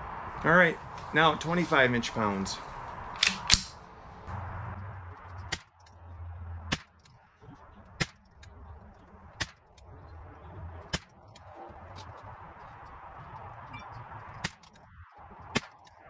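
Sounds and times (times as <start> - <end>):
rifle shots cracking: 3.2 - 3.8.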